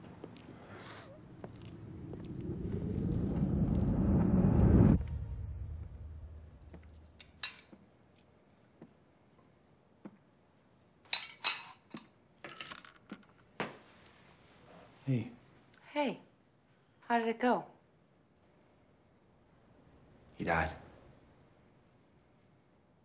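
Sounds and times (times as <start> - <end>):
low whoosh: 1.2 - 7.3
dishes and cutlery clinking: 11.1 - 13.2.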